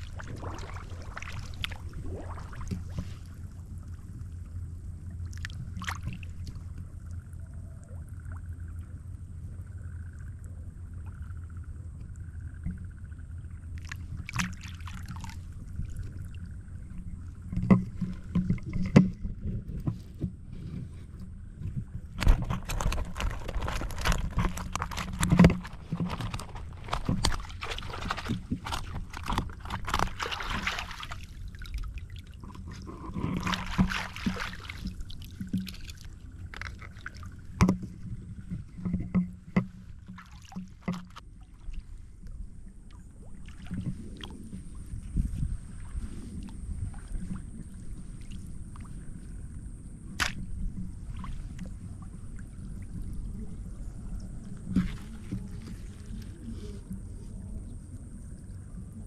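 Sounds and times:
water splashing: 0.0s - 4.2s, 5.1s - 8.5s, 13.7s - 20.0s, 22.1s - 41.9s, 43.0s - 49.4s
steady low rumble: 0.0s - 59.0s.

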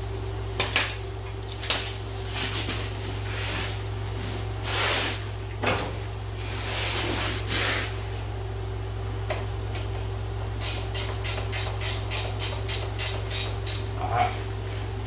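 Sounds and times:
ratchet wrench clicking: 10.6s - 13.9s.

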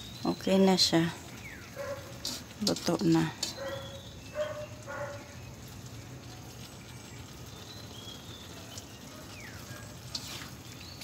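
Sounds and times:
faint bird chirps: 3.5s - 5.6s, 6.2s - 11.0s.

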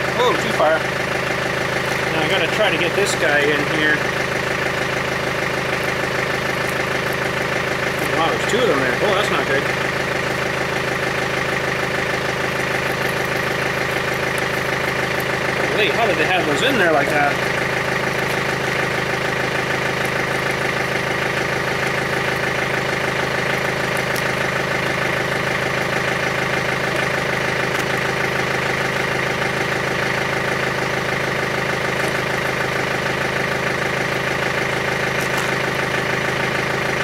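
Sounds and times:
diesel engine idling: 0.0s - 37.0s.

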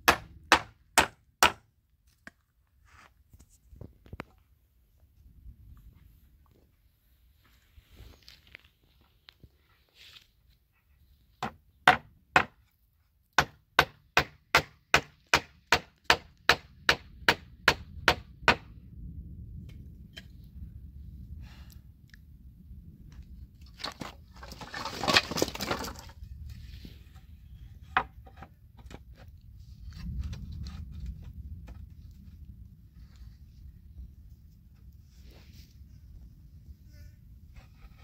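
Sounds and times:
hammer striking nails into wood: 0.0s - 1.6s, 11.4s - 12.6s, 13.4s - 18.7s.

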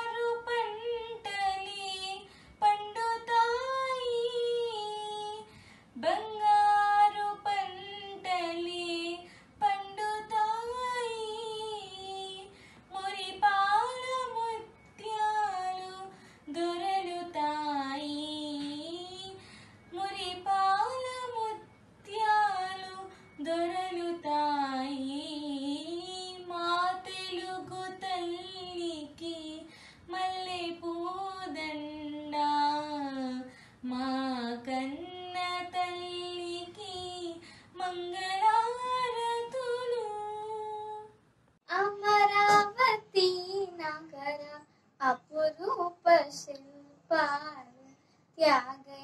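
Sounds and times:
girl singing unaccompanied: 0.0s - 49.0s
girl's voice: 45.0s - 49.0s.

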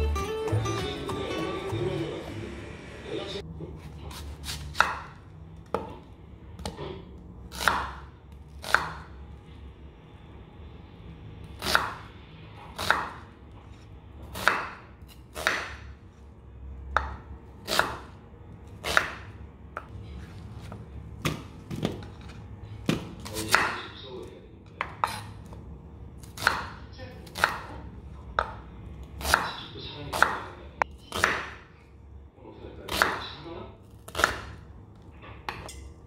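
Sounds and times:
knife cutting onions on wooden board: 3.8s - 6.0s, 7.5s - 8.0s, 8.6s - 9.1s, 11.6s - 13.3s, 14.2s - 15.8s, 17.0s - 18.1s, 18.8s - 21.4s, 22.2s - 23.8s, 24.8s - 25.3s, 26.2s - 27.7s, 29.2s - 30.4s, 31.0s - 31.6s, 32.9s - 33.4s, 34.0s - 34.6s.

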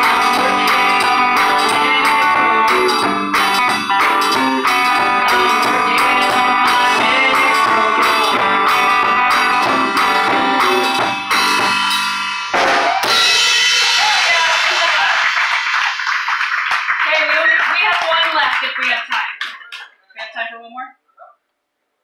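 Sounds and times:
electric guitar: 0.0s - 16.6s
live band music: 0.0s - 18.6s.

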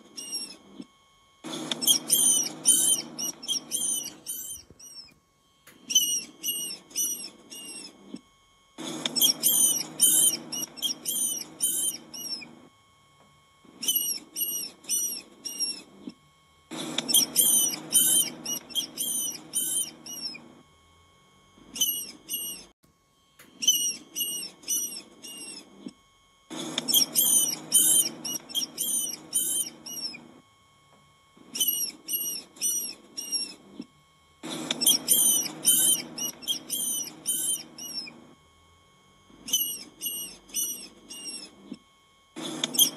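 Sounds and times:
rodent squeaking: 0.0s - 0.7s, 1.5s - 5.2s, 5.8s - 8.1s, 8.8s - 12.5s, 13.8s - 15.9s, 16.7s - 20.4s, 21.7s - 22.7s, 23.6s - 25.8s, 26.5s - 30.2s, 31.5s - 33.8s, 34.4s - 38.2s, 39.4s - 41.6s, 42.4s - 42.9s.

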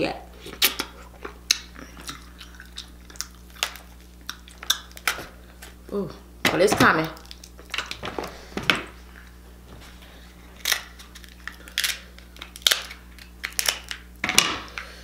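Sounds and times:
scissors crunching crab shell: 0.6s - 5.8s, 10.6s - 14.9s.

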